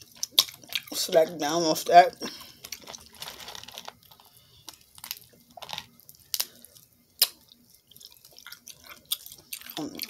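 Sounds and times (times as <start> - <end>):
wet squishing and chewing: 0.0 - 1.2, 2.3 - 10.0
shells cracked and peeled: 2.6 - 6.6.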